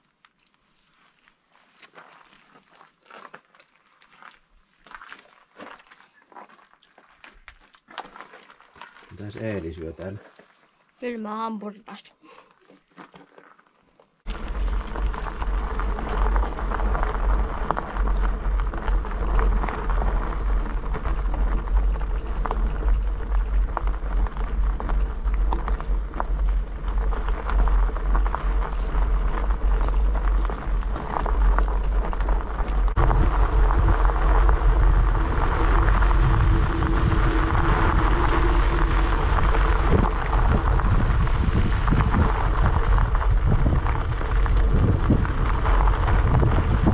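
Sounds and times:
bicycle tyres on gravel: 0.0 - 11.4, 12.3 - 46.9
wind rumbling on microphone: 14.3 - 46.9.

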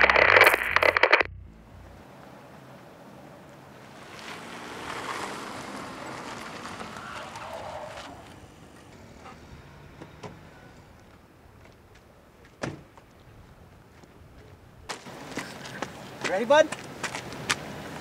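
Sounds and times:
wind: 0.0 - 18.0
car pulling in on gravel: 1.4 - 11.4.

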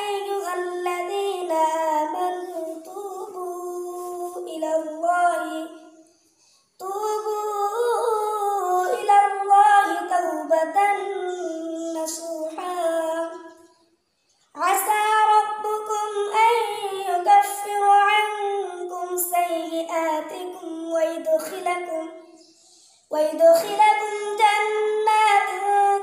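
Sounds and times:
boy reciting melodically: 0.0 - 6.2, 6.8 - 13.8, 14.6 - 26.0.

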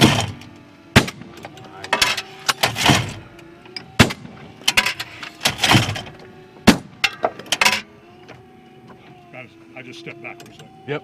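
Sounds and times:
shotguns firing: 0.0 - 1.4, 4.0 - 4.5, 6.6 - 7.0.

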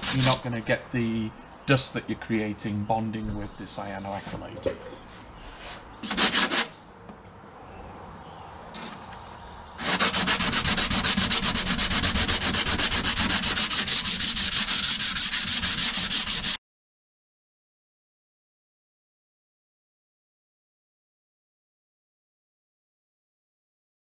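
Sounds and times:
sandpaper rubbing by hand: 0.0 - 0.4, 5.4 - 6.8, 9.8 - 16.6.

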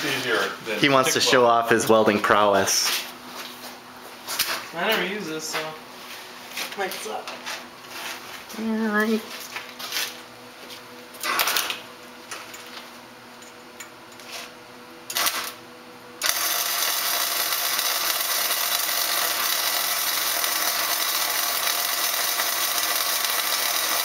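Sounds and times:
wire-feed welder hissing: 15.1 - 15.6, 16.2 - 24.0.

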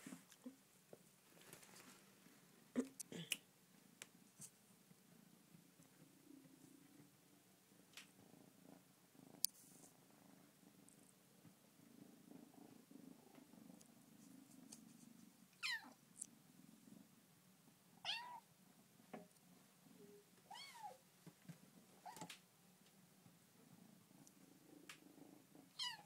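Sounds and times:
kitten meowing: 15.6 - 16.0, 18.0 - 18.4, 25.8 - 26.0.

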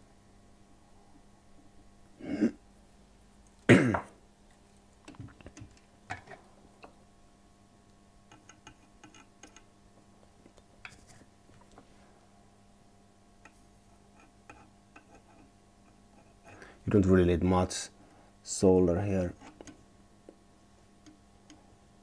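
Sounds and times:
person clearing throat: 2.2 - 2.6, 3.7 - 4.2
person coughing: 2.2 - 2.6, 3.7 - 4.1.

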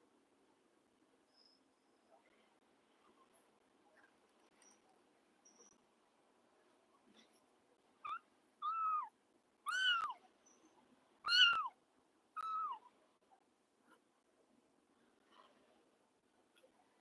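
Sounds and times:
kitten mewing: 8.0 - 9.1, 9.7 - 10.2, 11.3 - 11.8, 12.4 - 12.9.

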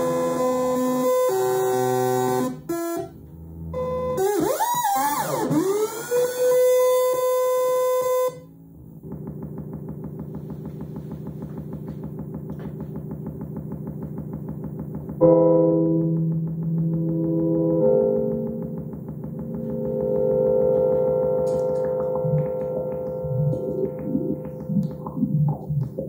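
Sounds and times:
loud sustained synth chord: 0.0 - 25.2
gliding synthesizer tones: 3.6 - 26.0
fast pulsing synth sequence: 9.0 - 15.3, 16.0 - 26.0.

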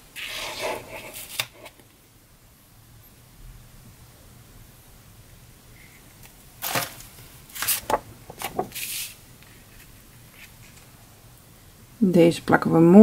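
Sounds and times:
paper rustling: 6.6 - 10.9.

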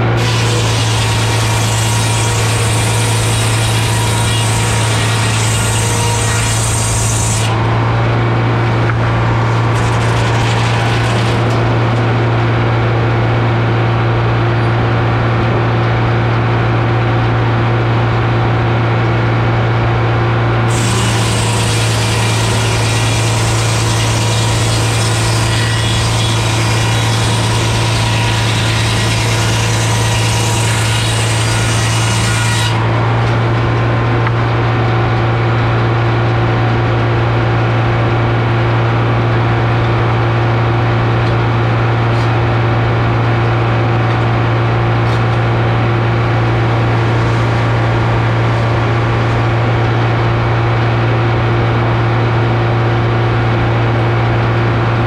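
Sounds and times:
circular saw cutting wood: 0.0 - 12.6, 20.7 - 34.8
diesel engine running: 7.5 - 22.0, 32.8 - 55.0.

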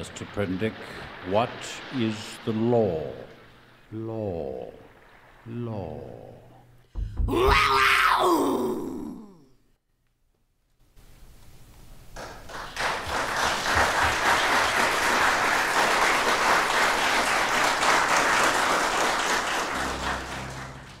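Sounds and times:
audience applause: 0.0 - 3.8, 12.2 - 21.0.

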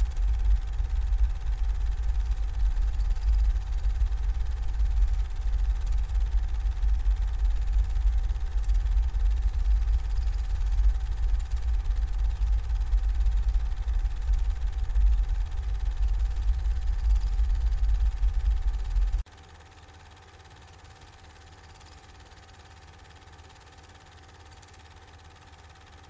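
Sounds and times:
faint thin hum: 0.0 - 19.2
low rumbling drone: 0.0 - 19.2.

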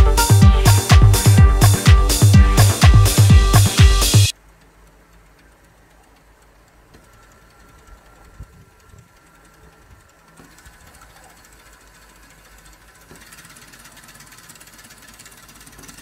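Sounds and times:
fast even ticking: 0.0 - 16.0
toy motor hum: 7.2 - 16.0.

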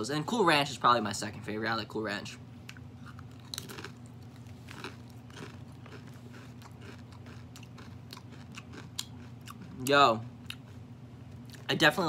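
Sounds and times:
steady low hum: 0.0 - 12.0
chips being chewed: 2.6 - 11.7.

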